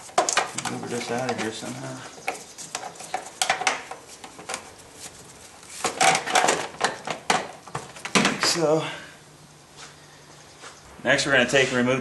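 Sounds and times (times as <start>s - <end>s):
plastic cover clattering against engine: 5.8s - 8.5s.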